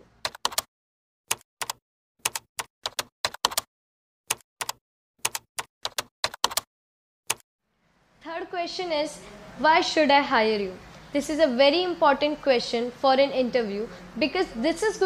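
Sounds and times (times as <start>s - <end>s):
key clicks typing: 0.2s - 0.7s, 1.3s - 3.7s, 4.3s - 6.7s.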